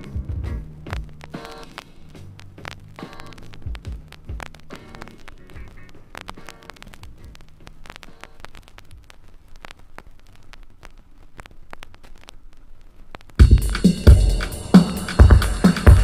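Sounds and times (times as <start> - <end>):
faint hiss and hum: 0.0 - 16.0
vinyl record crackle and pops: 0.0 - 16.0
loud drum hit: 13.4 - 16.0.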